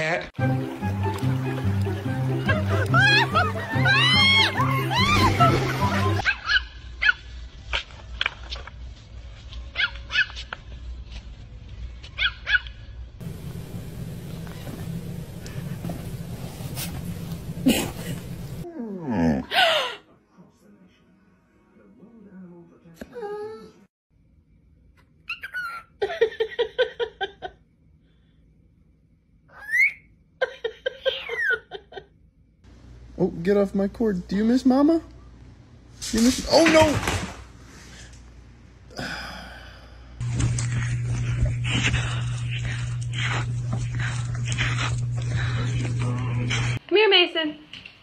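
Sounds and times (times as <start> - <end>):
small dog yapping: 6.2 - 7.9, 9.7 - 10.5, 12.2 - 12.8
steady low rumble: 13.1 - 18.6
parrot whistling: 29.5 - 30.1.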